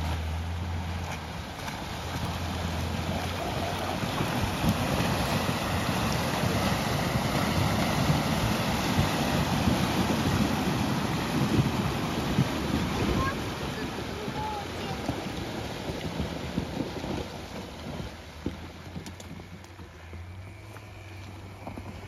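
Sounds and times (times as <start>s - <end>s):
water sloshing around wheels: 0.0s - 22.0s
wind buffeting microphone: 0.7s - 22.0s.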